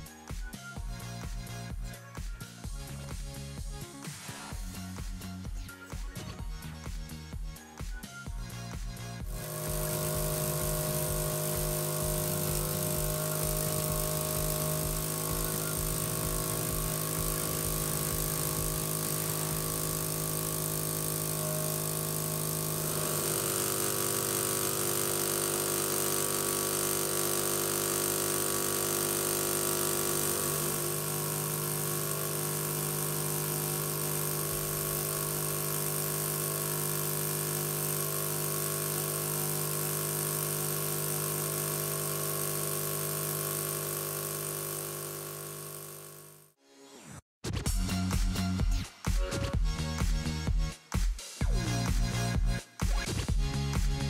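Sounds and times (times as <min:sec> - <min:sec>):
miniature steam engine whirring: 0:09.2 - 0:46.5.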